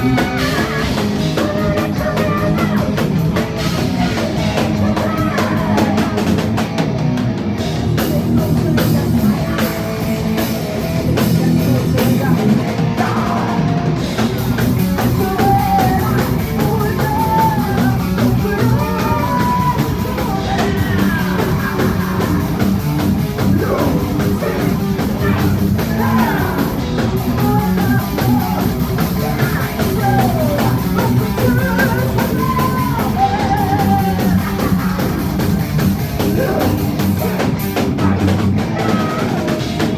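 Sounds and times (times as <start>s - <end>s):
woman singing: 0.0s - 6.2s, 15.1s - 21.7s, 29.4s - 34.8s
heavy metal band playing: 0.0s - 39.9s.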